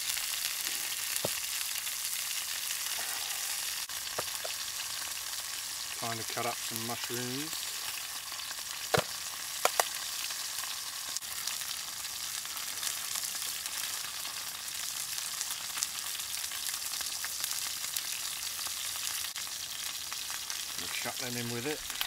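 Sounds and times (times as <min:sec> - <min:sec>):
steak sizzling in a frying pan: 0:00.0 - 0:22.0
sharp clicks: 0:09.6 - 0:09.9.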